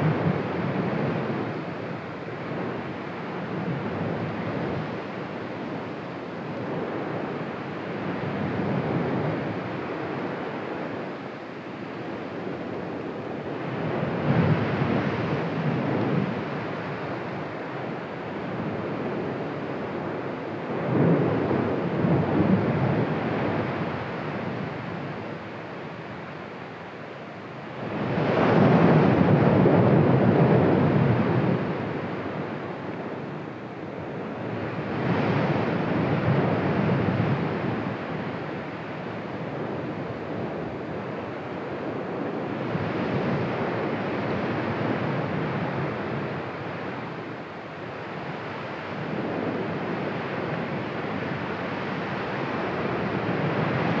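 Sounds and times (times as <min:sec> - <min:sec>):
volcano erupting rushing noise: 0:12.1 - 0:54.0.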